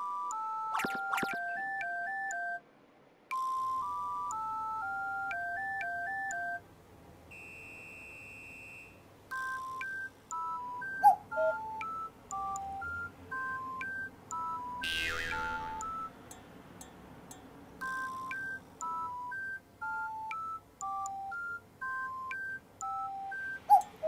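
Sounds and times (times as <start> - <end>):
electronic beep-like melody: 0.0 - 2.6, 9.3 - 16.2, 17.8 - 23.9
loud pitch-bending sound: 14.8 - 16.2.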